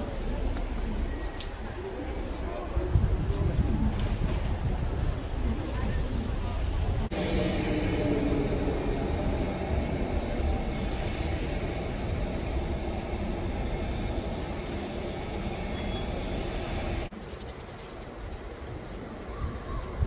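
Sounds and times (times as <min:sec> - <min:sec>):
train rumbling: 0:00.0 - 0:17.1
high thin wheel squeal: 0:13.6 - 0:17.1.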